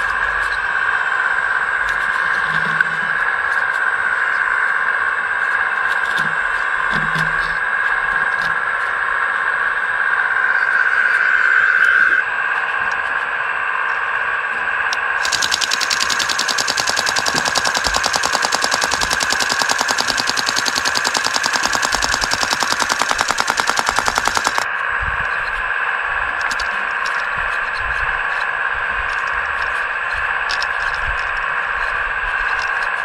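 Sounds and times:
high whine of electric motor: 8.6s - 33.0s
fast mechanical rattle: 15.2s - 24.7s.

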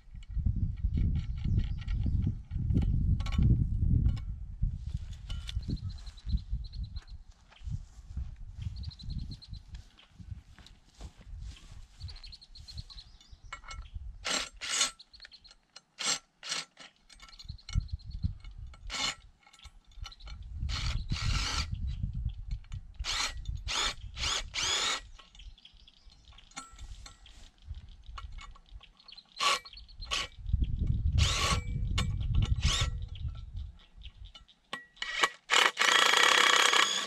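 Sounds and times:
chain and metal rattling on wood: 13.2s - 20.6s.

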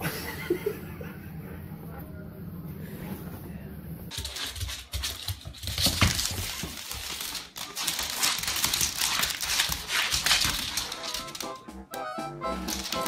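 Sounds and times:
dog claws scrabbling on wood floor: 4.1s - 11.6s, 12.7s - 13.0s
music with pitched notes: 11.0s - 13.0s.

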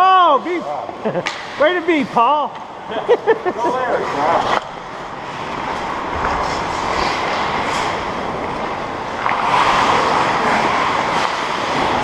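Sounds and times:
skate blades on ice: 4.1s - 12.0s.

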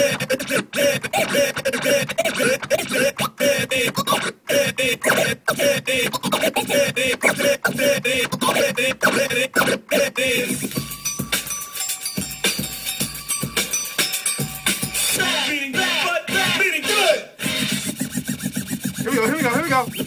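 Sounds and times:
turntable scratching a voice sample: 0.0s - 10.8s, 15.1s - 20.0s.

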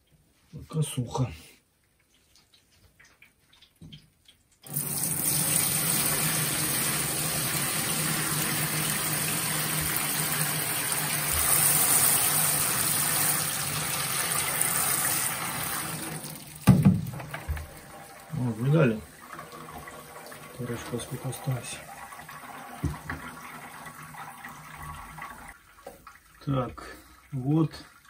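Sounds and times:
liquid pouring onto metal grate: 4.6s - 23.5s.

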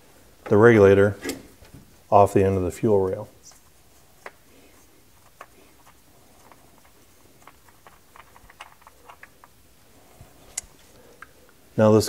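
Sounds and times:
small metal clicks: 5.2s - 9.6s.

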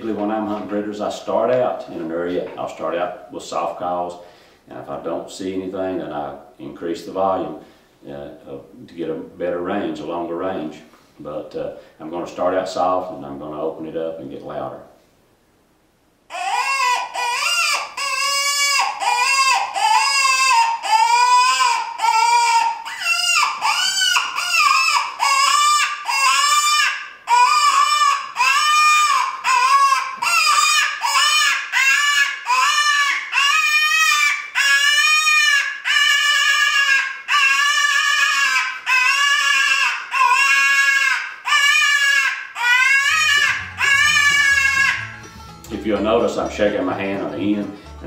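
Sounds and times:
wavering predator call cries: 16.3s - 48.0s.

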